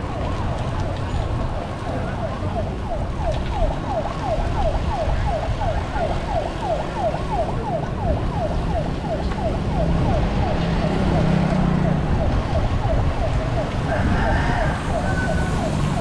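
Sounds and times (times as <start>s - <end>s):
wind: 0.0s - 16.0s
electronic siren yelping: 5.0s - 16.0s.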